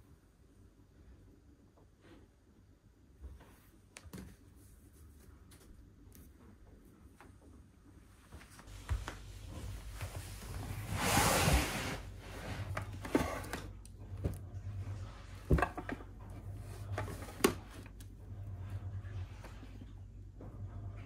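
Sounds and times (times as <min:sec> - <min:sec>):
fabric bin scraping on shelf: 0:09.4 - 0:13.8.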